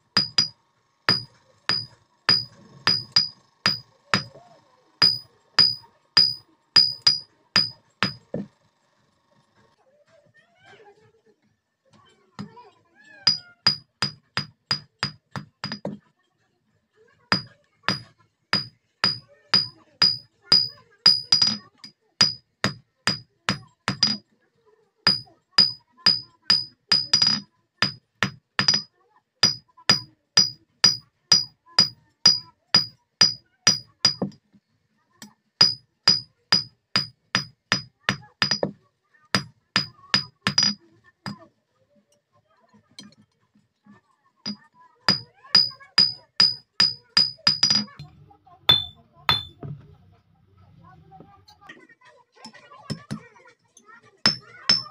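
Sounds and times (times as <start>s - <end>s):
hammer ringing on anvil: 0.2s - 0.5s, 1.1s - 4.3s, 5.0s - 8.3s, 13.3s - 15.8s, 17.3s - 21.6s, 22.2s - 24.2s, 25.1s - 34.4s, 35.6s - 38.7s, 44.5s - 47.9s, 48.7s - 49.6s, 54.3s - 54.9s.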